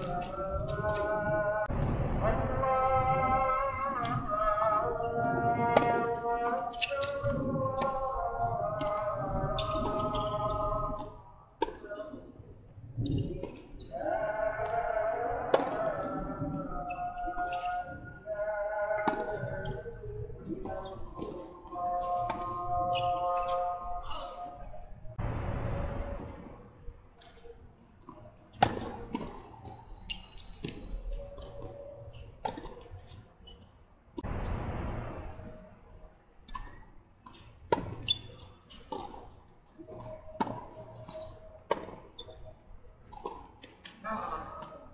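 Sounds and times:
tennis ball hit by rackets: 5.7s - 6.0s, 15.5s - 15.8s, 19.0s - 19.3s, 28.5s - 29.5s, 36.5s - 41.1s, 41.7s - 42.3s
tennis ball struck by rackets: 28.6s - 29.5s, 41.7s - 42.2s.

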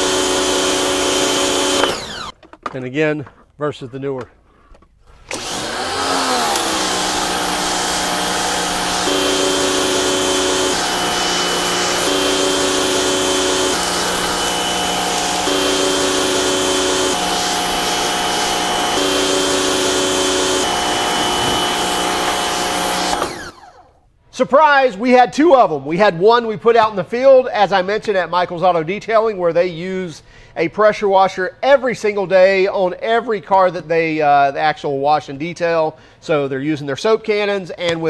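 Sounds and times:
motor and pump hum: 0.0s - 2.3s, 5.3s - 23.9s
pressure washer spraying: 0.0s - 2.3s, 5.3s - 23.6s
high-pitched pump whine: 5.8s - 23.9s.

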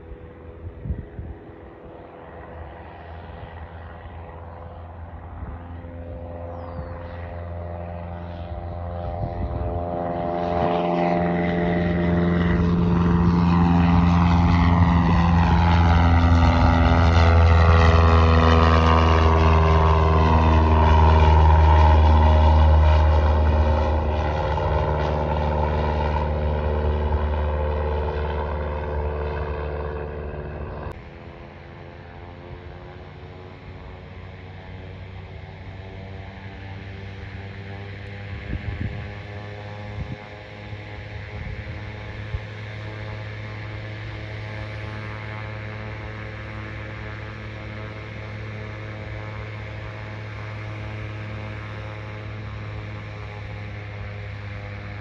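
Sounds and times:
propeller plane flying past: 0.0s - 55.0s.

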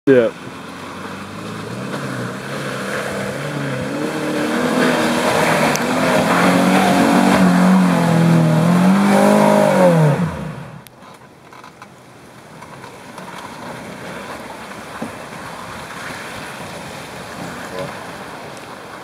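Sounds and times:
car engine revving hard: 0.5s - 10.8s.

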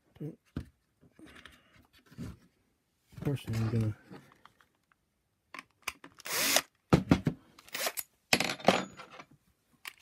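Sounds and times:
cordless drill whirring: 6.2s - 6.8s.

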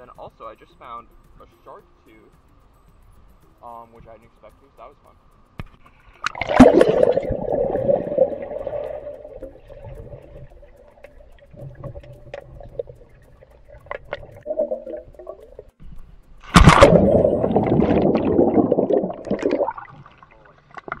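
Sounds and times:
water splashing: 6.2s - 15.8s, 16.4s - 21.0s
underwater bubbling: 6.2s - 21.0s.

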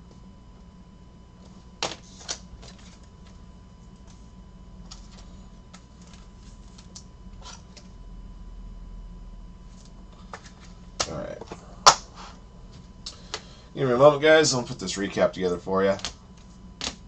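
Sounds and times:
cards and plastic cases handled: 1.4s - 7.9s, 9.7s - 12.0s.

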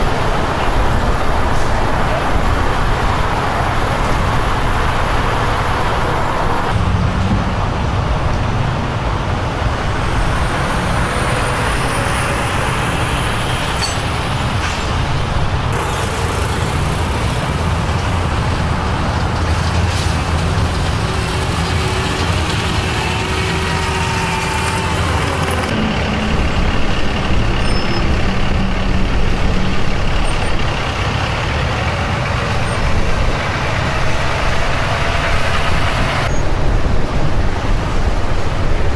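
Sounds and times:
diesel truck engines rumbling: 0.0s - 38.9s
road noise: 0.0s - 38.9s.

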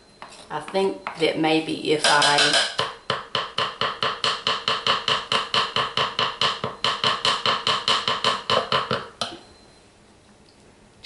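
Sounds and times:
wooden spoon tapping crockpot: 2.0s - 9.4s.

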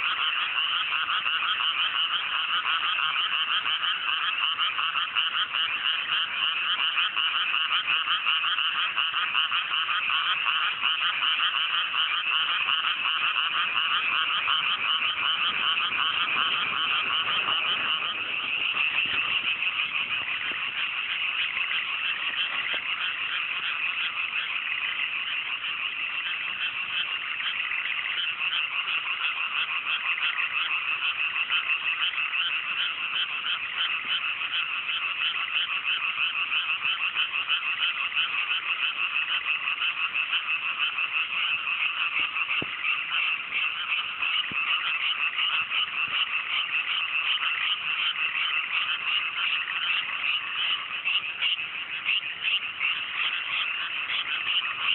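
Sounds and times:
chorus of frogs croaking: 0.0s - 54.9s.

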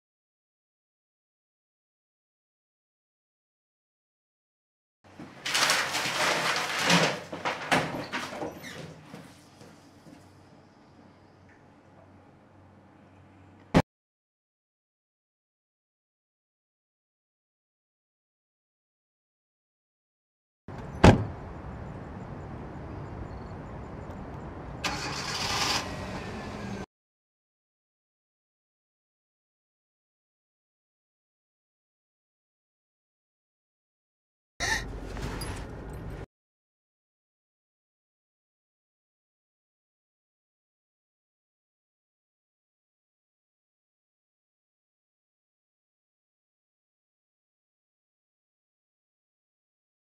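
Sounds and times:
clattering knocks and rustling: 5.1s - 10.2s
low room tone hum: 9.3s - 13.8s
heavy door swinging open: 20.8s - 21.4s
engine cranking and starting: 24.8s - 26.8s.

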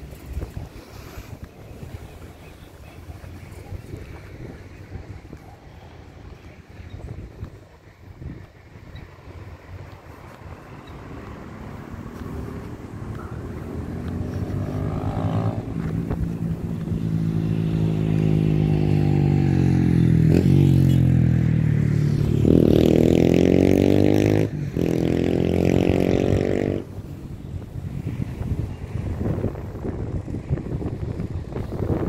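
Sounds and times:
vehicle engine accelerating: 9.1s - 32.0s.

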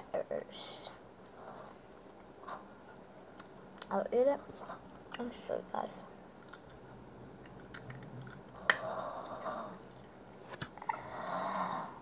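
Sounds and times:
crunching and chewing hard sweet: 6.4s - 6.8s, 7.4s - 10.9s.

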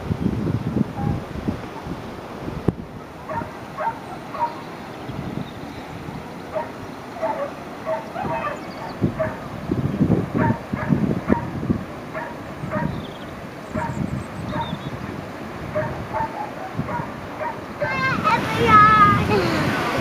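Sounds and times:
outdoor background noise: 0.0s - 20.0s
dog-like yapping calls: 3.2s - 4.7s, 6.5s - 9.5s, 10.4s - 11.5s, 12.1s - 13.1s, 13.7s - 14.8s, 15.7s - 19.2s.

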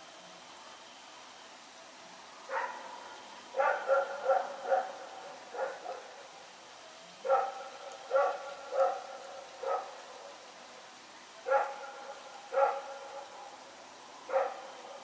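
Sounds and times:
dog barking: 2.5s - 2.9s, 3.6s - 6.1s, 7.2s - 10.0s, 11.4s - 13.3s, 14.3s - 15.0s.

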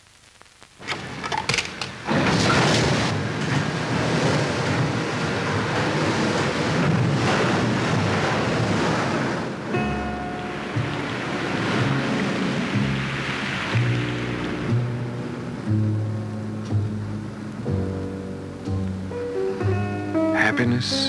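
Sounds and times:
water spray rushing: 10.5s - 15.5s.

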